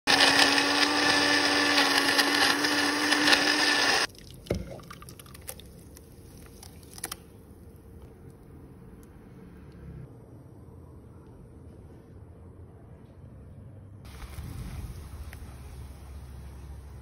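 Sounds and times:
electric blender grinding: 0.1 - 4.1.

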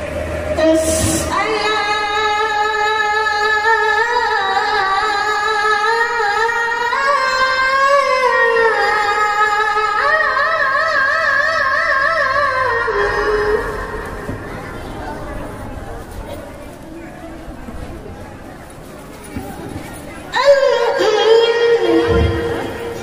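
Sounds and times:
boy chanting into a microphone: 0.0 - 15.6, 20.3 - 23.0.

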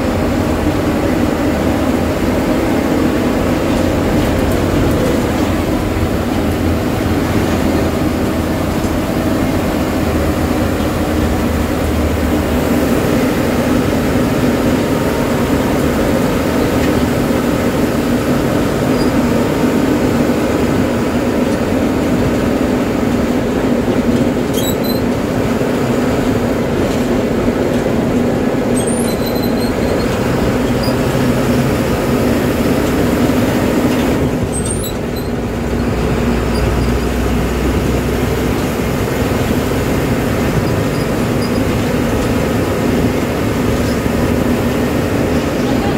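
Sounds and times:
bus engine drone: 0.0 - 45.9
road noise: 0.0 - 45.9.

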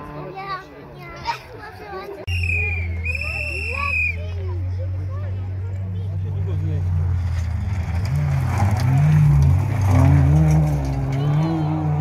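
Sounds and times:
rally car engine revving: 4.1 - 12.0
tyres on loose gravel: 6.6 - 11.6.

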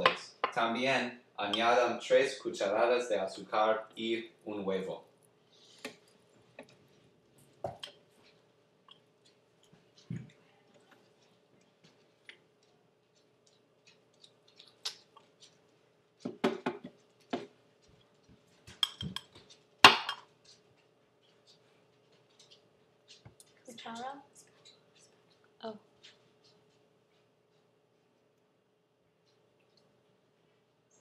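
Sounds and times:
faint steady hum: 0.0 - 31.0.

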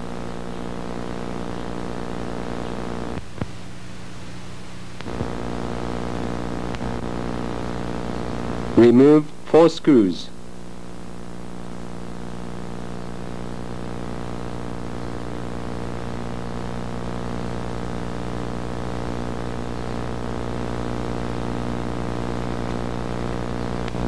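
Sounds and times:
droning hum with low pulse: 0.0 - 8.8, 10.3 - 24.0.

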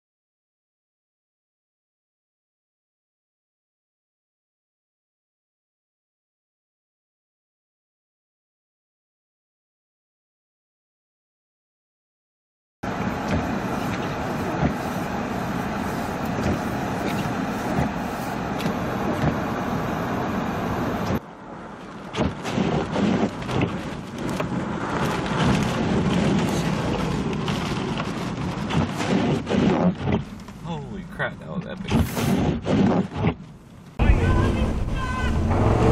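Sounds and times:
blizzard wind buffeting microphone: 12.9 - 30.3, 34.0 - 35.9.

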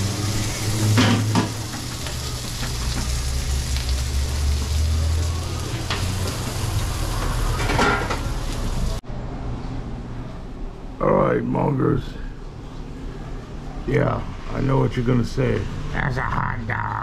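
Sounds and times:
food sizzling on a griddle: 0.0 - 9.0.

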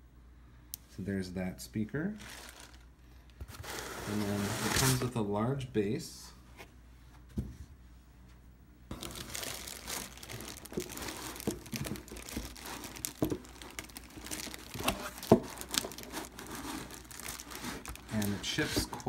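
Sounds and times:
plastic wrapping crinkling: 2.2 - 2.9, 8.9 - 19.0.

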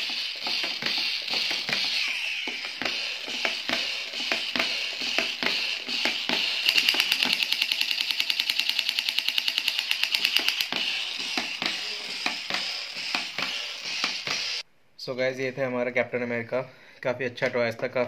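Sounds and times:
toy machine-gun rattle: 0.0 - 2.2, 2.8 - 14.6
crawling toy clicking: 3.4 - 13.5.

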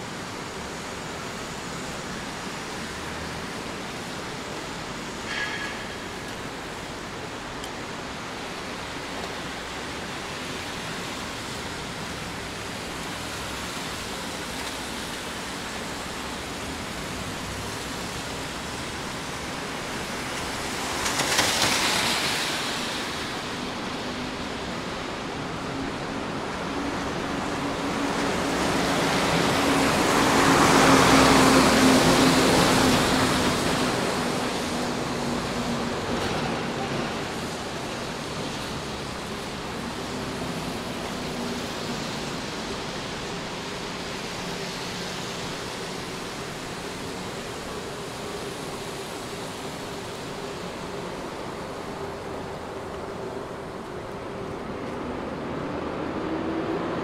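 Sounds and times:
rain on a wet street: 0.0 - 57.0
vehicle swishing past on wet road: 16.8 - 23.9.

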